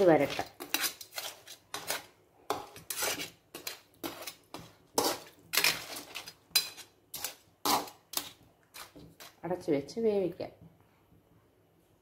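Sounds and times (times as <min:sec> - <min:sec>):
spatula scraping metal pan: 0:00.0 - 0:09.3.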